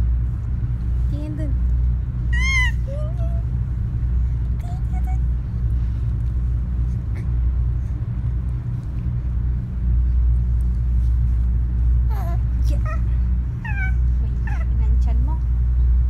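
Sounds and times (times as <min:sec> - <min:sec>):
ship engines droning: 0:00.0 - 0:16.0.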